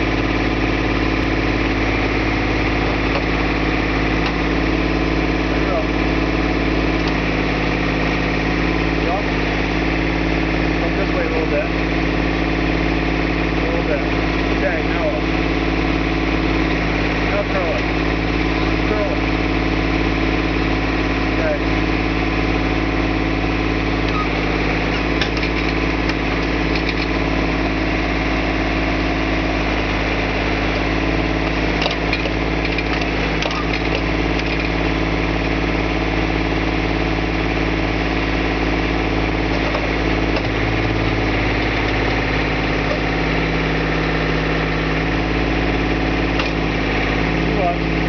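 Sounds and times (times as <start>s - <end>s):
tractor engine running: 0.0s - 48.0s.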